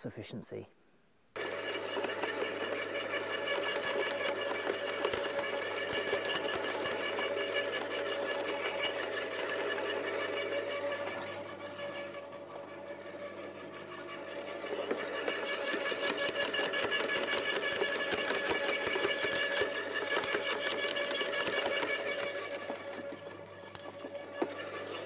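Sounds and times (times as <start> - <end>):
wood chipper motor whine: 1.4 - 25.0.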